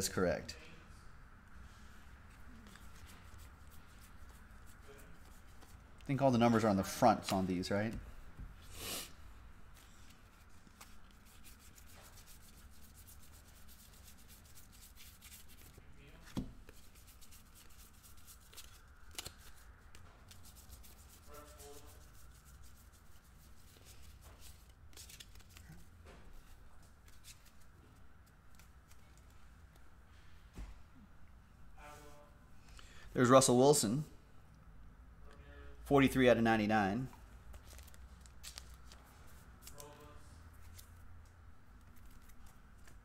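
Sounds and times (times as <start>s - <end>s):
trading cards rubbing and rustling: 2.2s - 8.0s, 9.7s - 29.9s, 37.1s - 43.0s.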